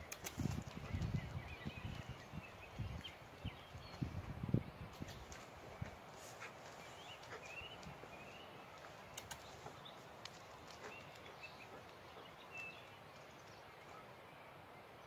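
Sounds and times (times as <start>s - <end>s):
outdoor background hiss: 0.0s - 15.0s
light clicks: 9.1s - 12.0s.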